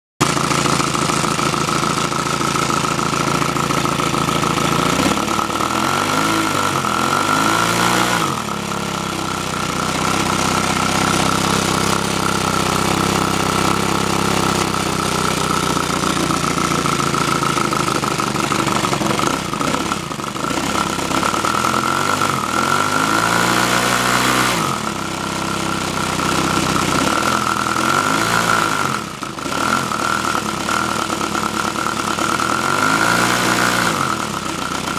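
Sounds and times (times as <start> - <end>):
model engine running: 0.2 - 34.9.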